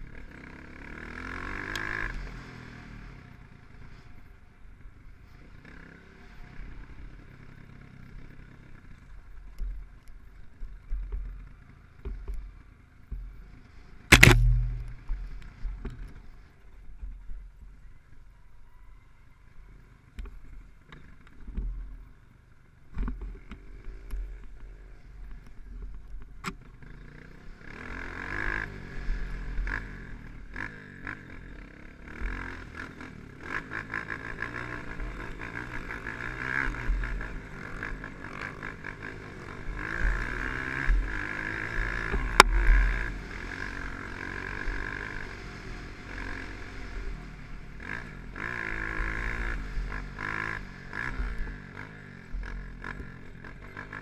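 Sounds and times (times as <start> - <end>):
dirt bike engine running: 5.6 - 18.0, 23.0 - 54.0
low rumble: 14.1 - 16.0
knocks from bumps: 14.1 - 16.2.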